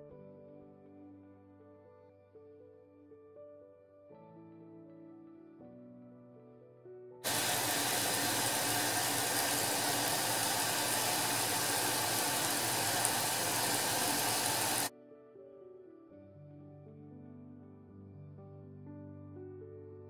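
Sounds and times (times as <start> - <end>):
water rushing into washing machine: 7.3 - 14.9.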